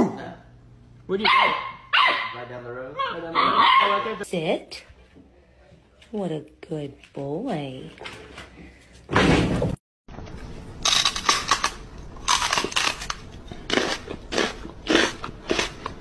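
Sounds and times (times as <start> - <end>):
person making chewing noises: 12.3 - 16.0.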